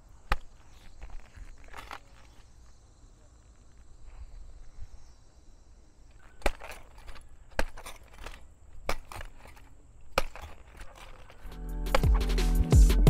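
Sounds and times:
digging tool striking ground: 0:00.0 - 0:02.6, 0:06.1 - 0:12.7.

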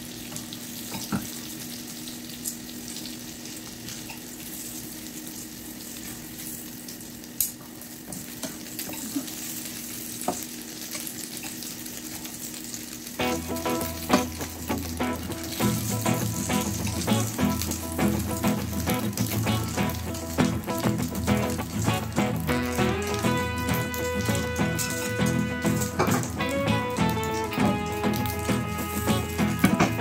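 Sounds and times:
oil sizzling in a pan: 0:00.0 - 0:30.0
music: 0:13.2 - 0:30.0.

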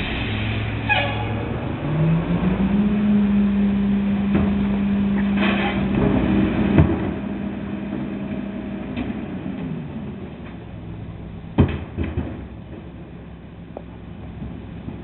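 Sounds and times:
diesel engine revving: 0:00.0 - 0:12.2
knocks and clatter: 0:11.5 - 0:15.0.

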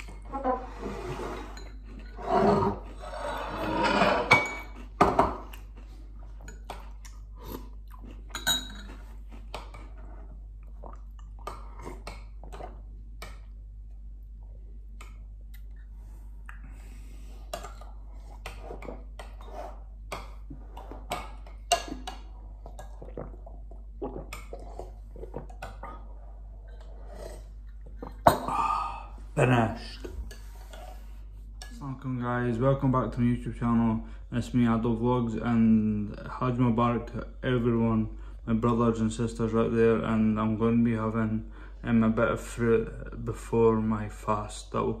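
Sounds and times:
metal spoon scraping a bowl: 0:00.6 - 0:04.7, 0:18.6 - 0:19.9
chewing: 0:04.7 - 0:12.7.

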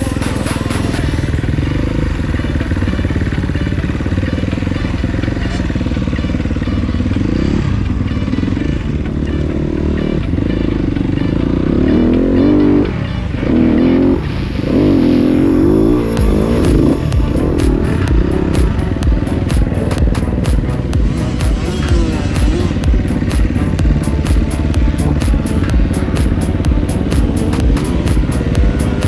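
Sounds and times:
motorcycle engine revving: 0:00.0 - 0:29.0.

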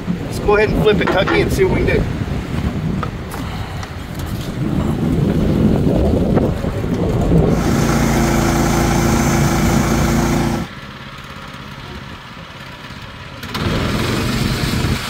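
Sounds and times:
small gas engine running: 0:07.2 - 0:15.0.

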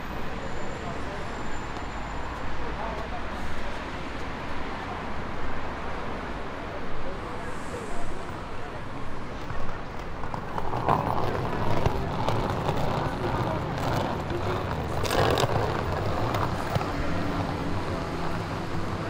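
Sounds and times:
traffic passing: 0:00.0 - 0:19.0
voices of passers-by: 0:00.0 - 0:19.0
vehicle engine steady: 0:06.2 - 0:19.0.

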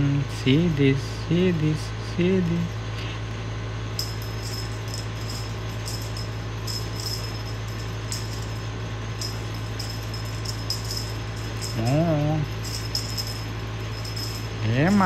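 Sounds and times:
steady low hum: 0:00.0 - 0:15.0
small bell jingling: 0:03.9 - 0:15.0.

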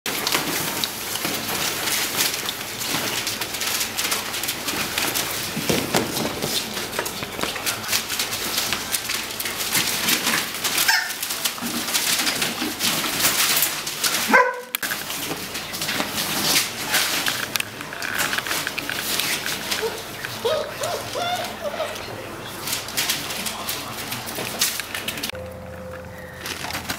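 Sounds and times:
newspaper rustling and crackling: 0:00.1 - 0:25.4, 0:26.2 - 0:26.9
puppy yelp: 0:10.8 - 0:11.2, 0:14.2 - 0:14.7, 0:19.6 - 0:22.1
puppy whimper: 0:19.6 - 0:22.2.

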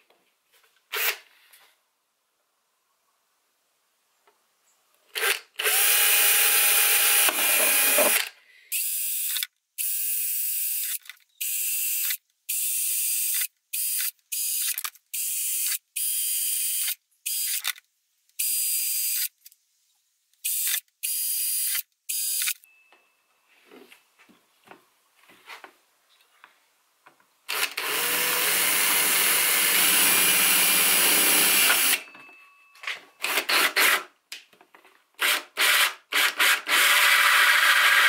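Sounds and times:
cordless drill boring plastic: 0:05.2 - 0:17.7, 0:27.5 - 0:32.0, 0:35.2 - 0:38.0.

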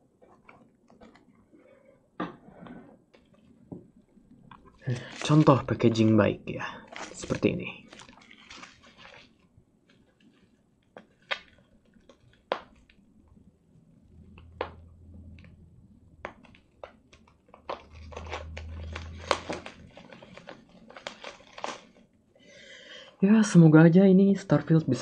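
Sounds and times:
bubble wrap crinkling: 0:04.2 - 0:13.5, 0:16.1 - 0:22.4
low hum: 0:13.1 - 0:16.8, 0:17.8 - 0:20.5.

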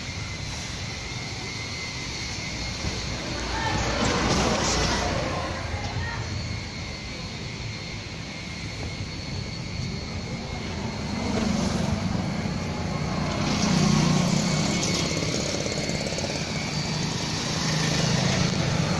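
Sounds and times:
car engine running: 0:09.7 - 0:18.9.

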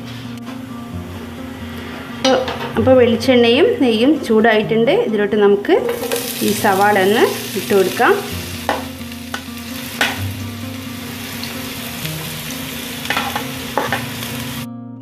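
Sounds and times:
metal spoon scraping pot: 0:05.8 - 0:06.4
onions sizzling in oil: 0:05.8 - 0:14.7.

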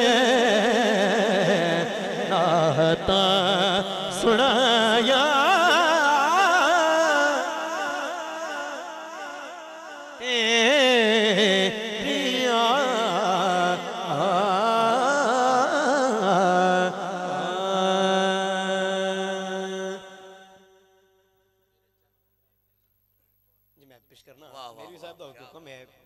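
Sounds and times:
man singing into a microphone: 0:00.0 - 0:20.7.

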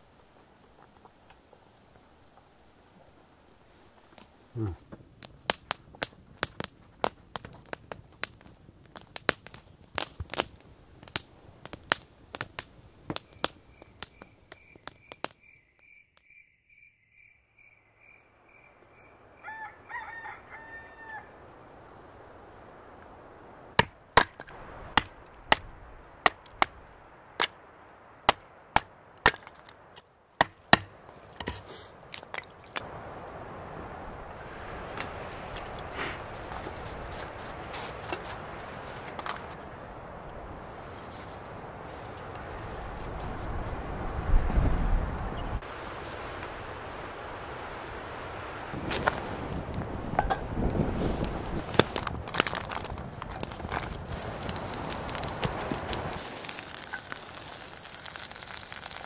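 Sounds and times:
wood fire crackling and popping: 0:03.8 - 0:15.5, 0:23.0 - 0:47.8, 0:48.7 - 0:59.0
rooster crowing: 0:19.0 - 0:21.5.

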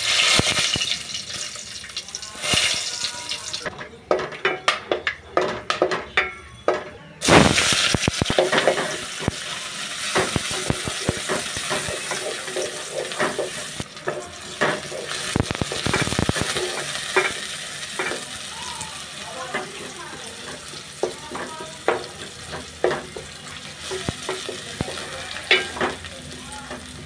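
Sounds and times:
onions sizzling in oil: 0:00.0 - 0:03.7, 0:07.2 - 0:27.0
spices crackling in hot oil: 0:00.0 - 0:03.7, 0:07.2 - 0:27.0
spatula scraping pot: 0:23.9 - 0:26.0.

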